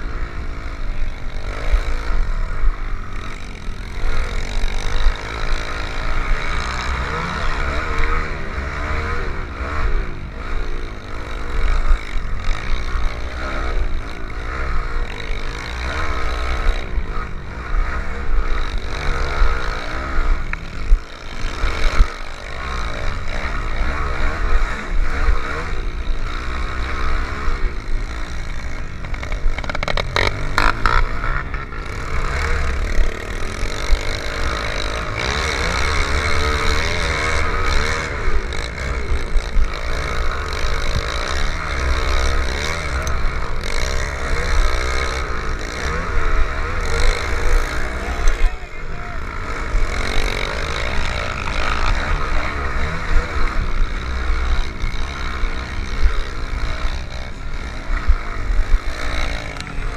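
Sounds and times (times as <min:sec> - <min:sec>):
small motorbike engines revving: 0:00.0 - 0:59.9.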